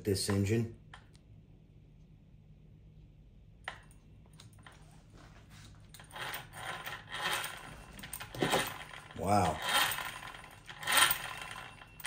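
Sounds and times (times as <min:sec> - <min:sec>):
small metal parts clicking and rattling: 0:06.0 - 0:12.0.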